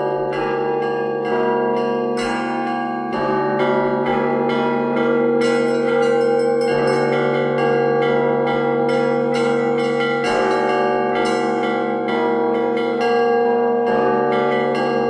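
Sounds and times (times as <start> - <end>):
church bells ringing: 0.0 - 15.0
deep steady bell tone: 0.0 - 15.0.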